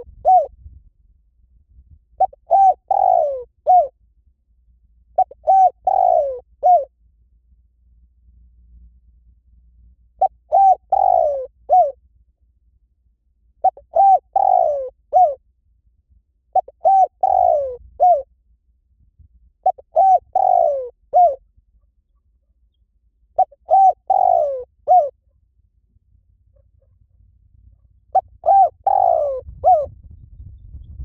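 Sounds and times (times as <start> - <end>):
dove cooing: 0.0 - 0.5, 2.2 - 3.9, 5.2 - 6.9, 10.2 - 12.0, 13.6 - 15.4, 16.5 - 18.3, 19.6 - 21.4, 23.4 - 25.2, 26.6 - 29.9.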